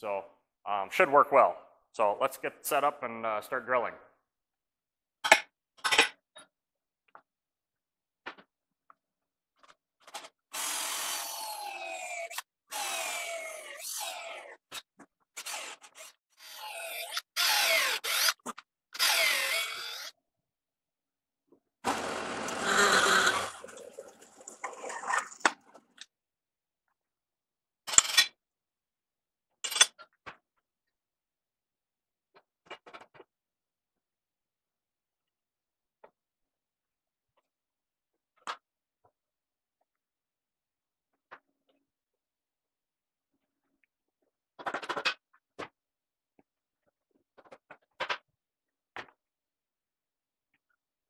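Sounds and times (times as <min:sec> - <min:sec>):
cordless drill boring into wood: 0:10.5 - 0:14.5, 0:15.4 - 0:18.4, 0:19.0 - 0:20.1, 0:21.8 - 0:23.6.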